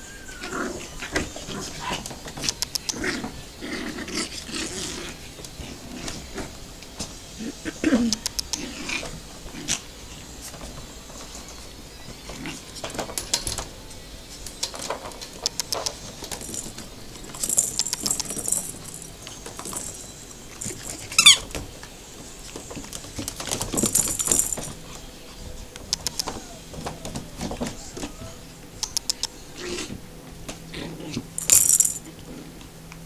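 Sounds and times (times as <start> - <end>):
paws clicking and scuffling: 14.5 - 21.4
plastic toy ball jingling: 15.4 - 21.4, 23.6 - 24.8, 31.4 - 32.0.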